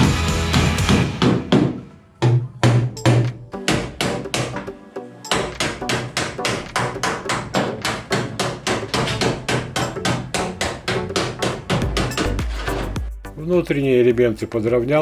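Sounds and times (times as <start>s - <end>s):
hammer striking sheet metal: 5.3s - 13.0s.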